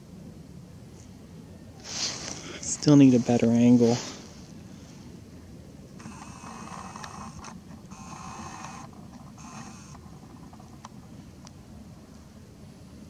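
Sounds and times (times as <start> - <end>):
camera lens motor whirring: 6.0 - 11.1.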